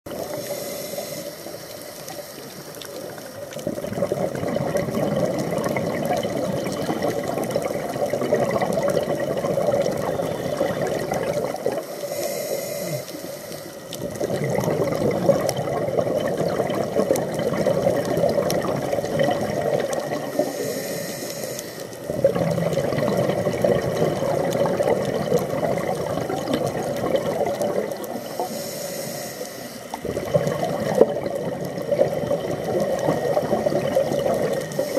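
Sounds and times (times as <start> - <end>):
hissing regulator inhalations: 0.2 - 3.4, 9.8 - 14.0, 20.2 - 22.1, 28.0 - 30.0, 34.4 - 34.9
bubbling exhalations underwater: 3.0 - 11.9, 13.9 - 20.6, 22.1 - 28.4, 30.0 - 34.9.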